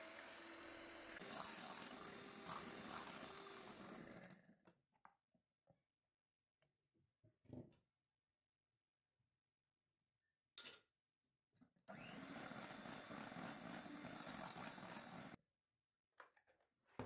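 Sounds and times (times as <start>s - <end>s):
electric hand mixer running: 0.0s - 4.4s, 11.9s - 15.4s.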